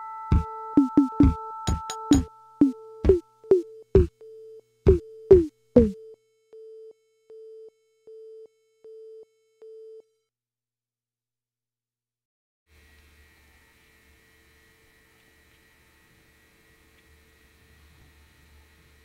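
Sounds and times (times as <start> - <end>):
held high keyboard notes: 0.3 - 4.1
drum machine beats: 0.3 - 4.2, 4.9 - 6.0
pulsing electronic keyboard tone: 0.3 - 6.1.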